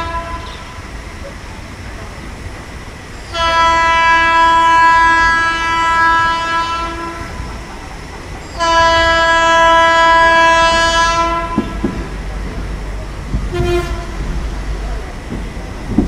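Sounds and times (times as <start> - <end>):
train horn blasts: 0.0 - 0.8, 3.3 - 7.4, 8.5 - 12.0, 13.5 - 14.3
low rumble of train: 0.0 - 16.0.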